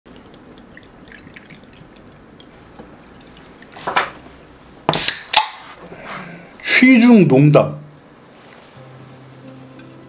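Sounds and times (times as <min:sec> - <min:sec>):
liquid trickling into a glass: 0:00.1 - 0:03.8
beer can cracked open: 0:04.9 - 0:05.6.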